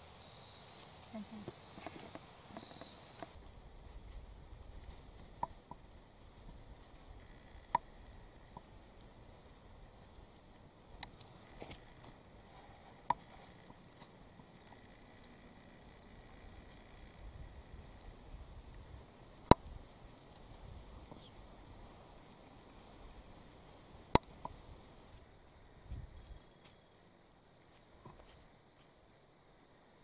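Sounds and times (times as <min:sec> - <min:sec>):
faint high chirps: 0:00.0 - 0:03.4
rustling in dry leaves: 0:00.0 - 0:14.3, 0:17.2 - 0:28.5.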